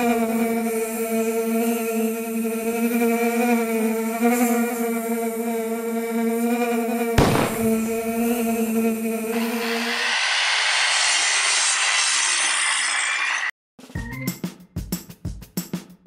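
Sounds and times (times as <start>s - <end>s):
fly buzzing: 0.0s - 10.0s
sudden hit with noisy tail: 7.2s - 8.2s.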